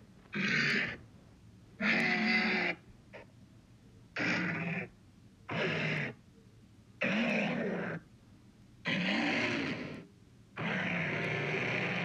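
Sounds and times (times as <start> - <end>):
rough low creature call: 1.8 - 2.8, 8.9 - 10.0, 10.6 - 12.0.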